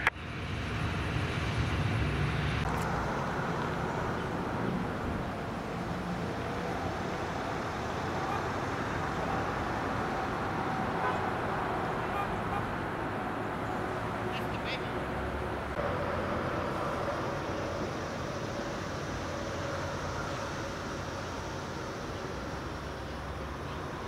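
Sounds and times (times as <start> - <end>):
vehicle rumble with hiss: 0.0 - 24.0.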